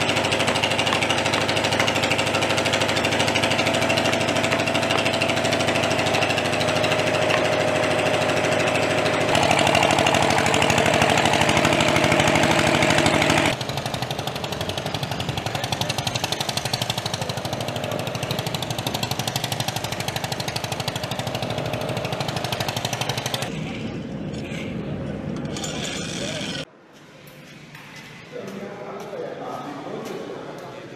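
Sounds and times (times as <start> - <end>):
rapid mechanical pulsing: 0.0 - 23.7
construction machinery engine drone: 0.0 - 26.7.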